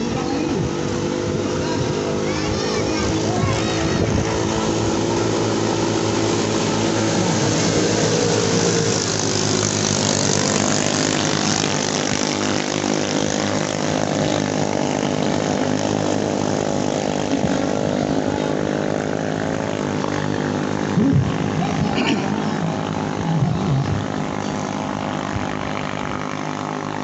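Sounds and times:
boat engines buzzing at high revs: 0:00.0 - 0:27.0.

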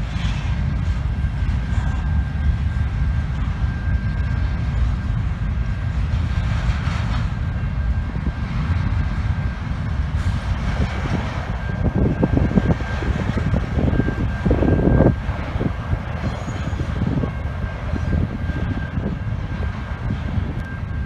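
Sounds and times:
freight train rumble: 0:00.0 - 0:21.0
wheels clacking on rails: 0:00.0 - 0:21.0.

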